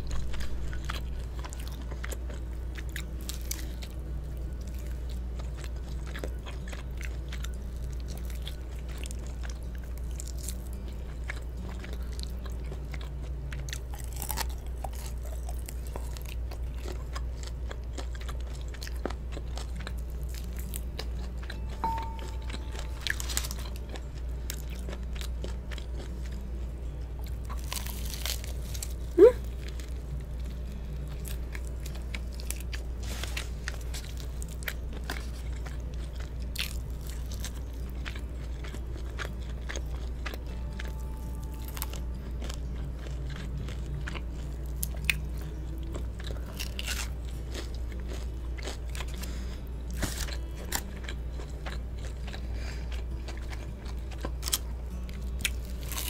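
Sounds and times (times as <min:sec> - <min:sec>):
crunching and chewing fried chicken: 0:00.0 - 0:56.0
steady low hum: 0:00.0 - 0:56.0.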